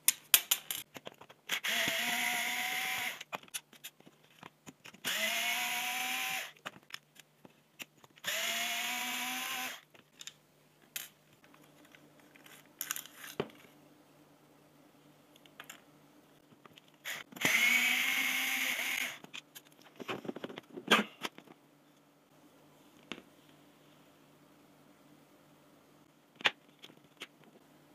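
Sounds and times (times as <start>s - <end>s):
power screwdriver whine: 17.1s - 19.2s.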